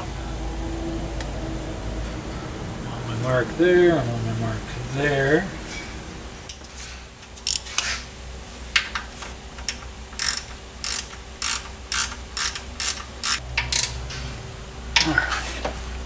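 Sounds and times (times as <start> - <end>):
ratchet wrench clicking: 7.4 - 7.9, 9.6 - 14.0.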